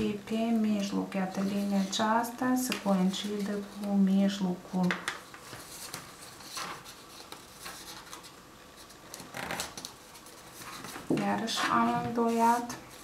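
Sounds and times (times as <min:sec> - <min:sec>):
paper rustling and folding: 0:00.4 - 0:13.0
paper crinkles: 0:04.8 - 0:11.1.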